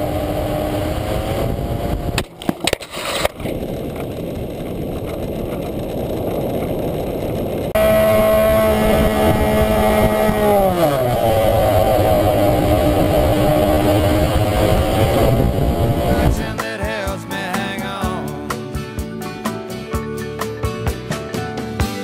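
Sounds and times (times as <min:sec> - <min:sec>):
model plane motor: 0:00.0 - 0:02.2, 0:03.1 - 0:16.3
motor hum with overtones: 0:00.0 - 0:02.2, 0:03.5 - 0:16.4
wind rush: 0:02.9 - 0:16.6.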